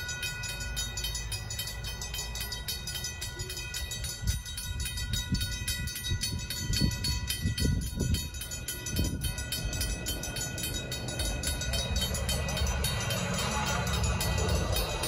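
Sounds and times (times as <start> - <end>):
crossing warning bell ringing: 0.0 - 15.0
low rumbling: 4.2 - 15.0.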